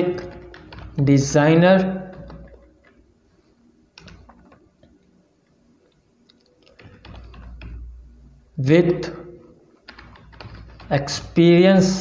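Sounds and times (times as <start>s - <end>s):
keyboard typing: 0.0s - 3.1s, 3.9s - 5.0s, 5.9s - 8.0s, 9.8s - 12.0s.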